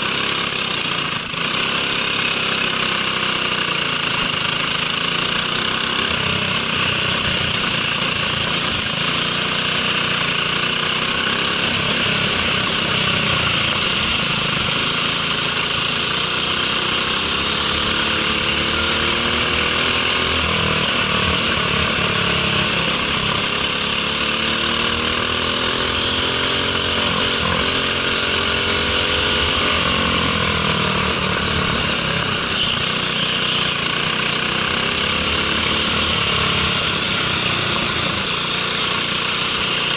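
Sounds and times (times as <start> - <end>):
kart engine revving: 0.0 - 39.9
steady rushing noise: 16.8 - 33.1.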